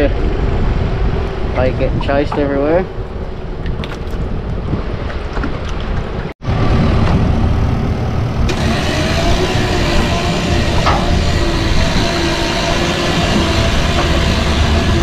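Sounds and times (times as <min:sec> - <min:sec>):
low rumble: 0:00.0 - 0:15.0
wind and water noise: 0:00.0 - 0:15.0.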